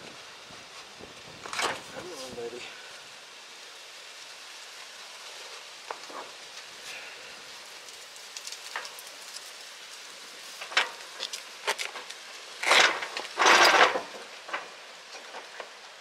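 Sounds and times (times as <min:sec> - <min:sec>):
fabric rustling and scraping: 0:12.6 - 0:14.1.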